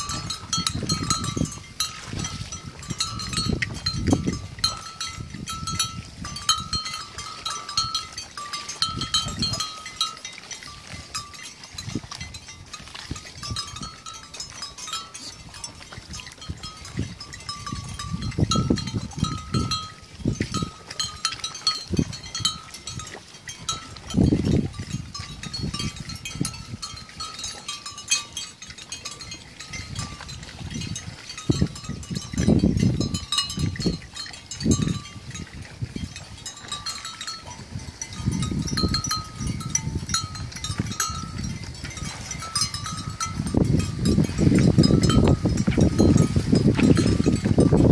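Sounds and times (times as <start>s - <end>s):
rustling and splashing in water: 0.0s - 47.9s.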